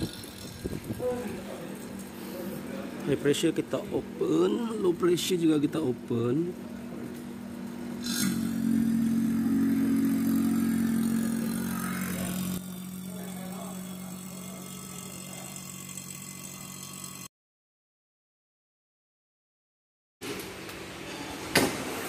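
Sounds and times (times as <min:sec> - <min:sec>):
motor humming: 0:00.0 - 0:17.3.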